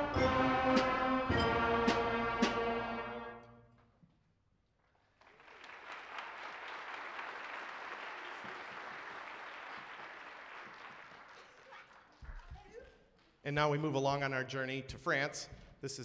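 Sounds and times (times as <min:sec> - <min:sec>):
audience applauding: 0:05.1 - 0:12.8.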